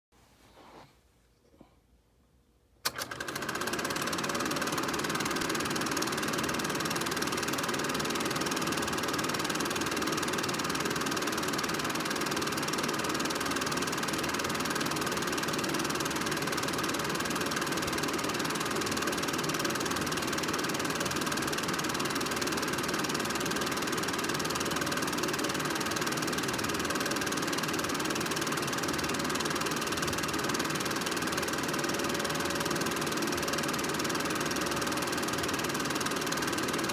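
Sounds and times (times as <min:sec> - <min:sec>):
projector click: 0:02.8 - 0:03.8
film projector whirring: 0:02.8 - 0:36.9.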